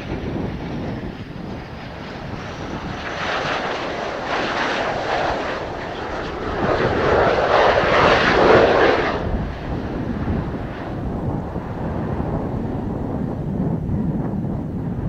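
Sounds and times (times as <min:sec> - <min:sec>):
jet engines passing: 0:00.0 - 0:15.0
wind rumble on microphone: 0:00.0 - 0:15.0.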